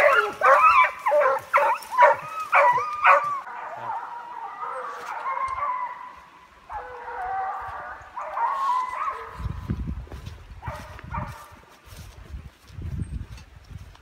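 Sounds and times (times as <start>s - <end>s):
hounds baying: 0.0s - 9.5s.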